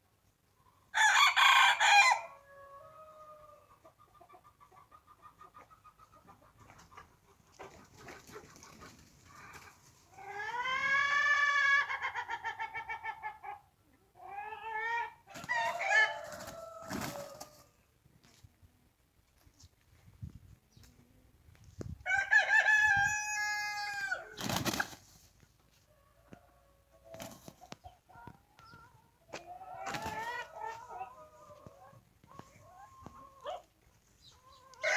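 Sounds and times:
roosters crowing: 1.0s - 3.6s, 14.7s - 17.7s, 22.1s - 24.7s
hens clucking: 2.9s - 17.8s, 23.9s - 34.9s
roosters scuffling: 15.4s - 18.4s, 24.4s - 25.5s, 29.3s - 30.8s.

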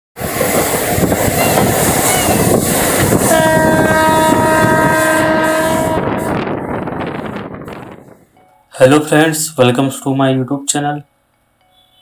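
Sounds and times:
train running noise: 0.2s - 10.1s
locomotive horn blast: 3.2s - 6.6s.

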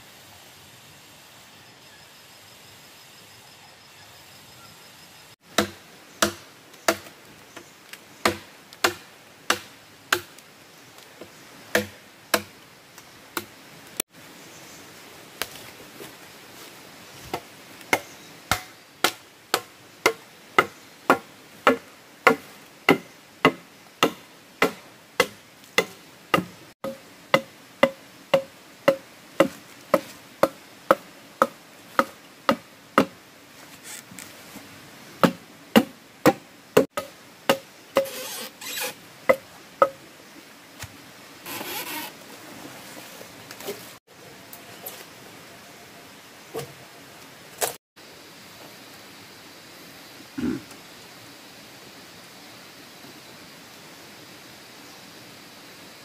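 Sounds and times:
machete chopping bamboo: 5.5s - 7.1s, 8.2s - 10.4s, 11.7s - 12.5s, 17.3s - 33.2s, 35.2s - 36.4s, 37.0s - 38.3s, 39.3s - 40.0s.

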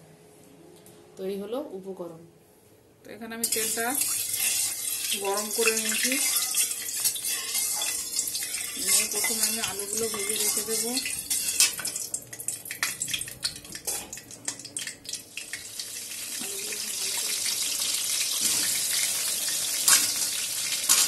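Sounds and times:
potatoes sizzling in oil: 3.4s - 12.1s, 14.5s - 21.0s.

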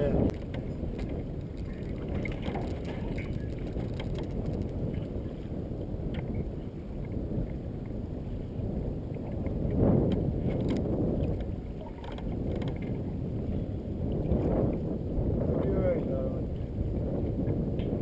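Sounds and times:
water lapping on metal hull: 0.0s - 5.5s, 9.1s - 14.8s
wind buffeting microphone: 0.0s - 18.0s
light water splashes: 0.3s - 5.1s.

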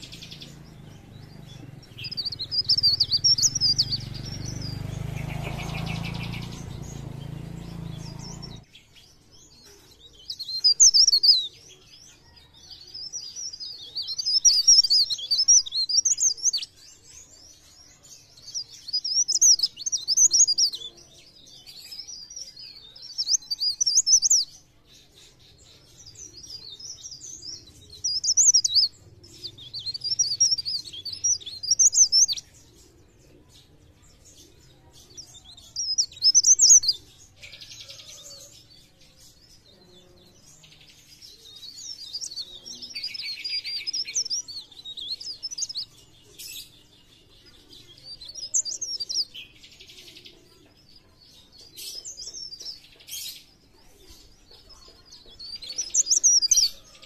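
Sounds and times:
warbler high twittering song: 0.0s - 57.0s.

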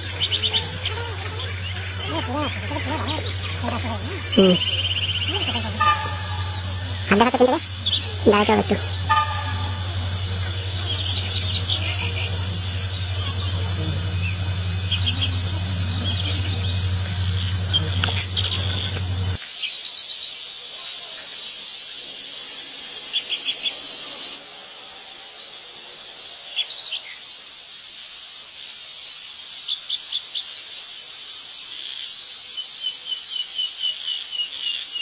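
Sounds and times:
bird chirps: 0.0s - 19.4s
diesel locomotive hum: 0.0s - 19.4s
shrill insect drone: 0.0s - 19.4s.

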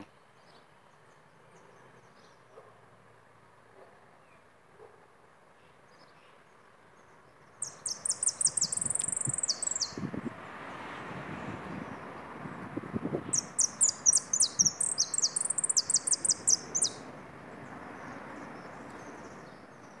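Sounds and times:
finch singing sharp high notes: 7.6s - 10.0s, 13.4s - 17.0s.

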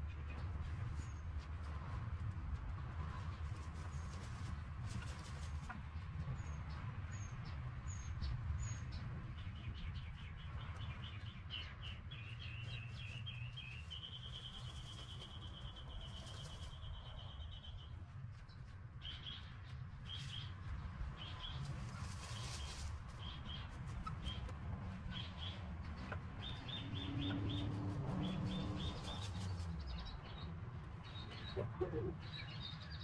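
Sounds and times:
songbird chirping and trilling: 6.4s - 20.6s, 21.2s - 33.0s.

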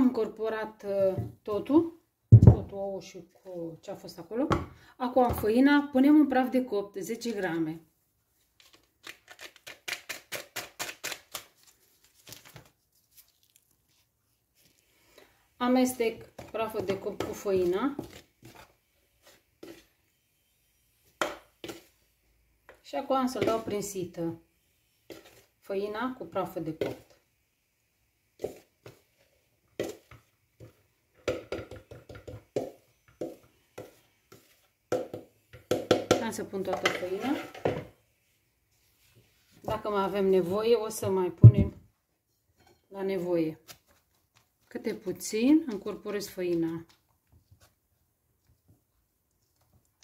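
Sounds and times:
paper sachet tapping and crinkling: 8.6s - 13.8s
spoon knocking and scraping bowl: 16.0s - 20.0s, 21.1s - 22.0s, 22.7s - 24.0s, 25.1s - 25.5s, 29.8s - 37.9s.

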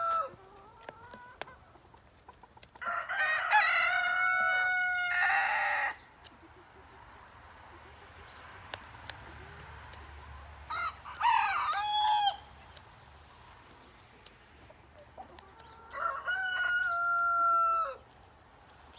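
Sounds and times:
chicken calling: 2.7s - 7.1s, 14.6s - 18.1s.

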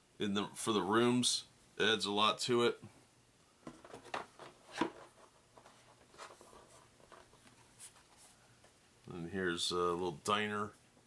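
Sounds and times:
cardboard tiles scraping and tapping: 3.7s - 8.0s.

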